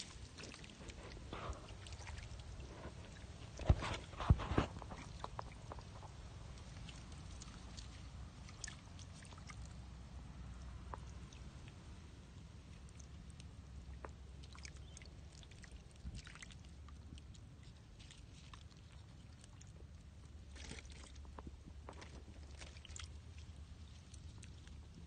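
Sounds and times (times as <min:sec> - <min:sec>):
sharp water splashes: 0:00.0 - 0:09.8
wet mud being disturbed: 0:00.0 - 0:09.8
small wet clicks: 0:00.0 - 0:09.9, 0:10.5 - 0:25.0
low steady rumble: 0:00.0 - 0:25.0.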